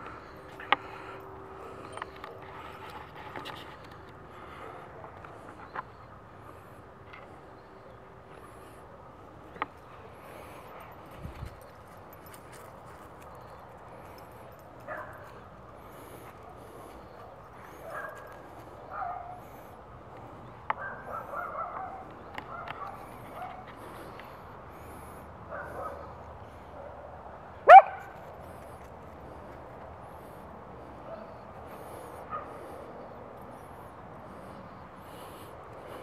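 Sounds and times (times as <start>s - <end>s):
dog barking and yipping: 20.8s - 23.6s, 27.6s - 28.2s.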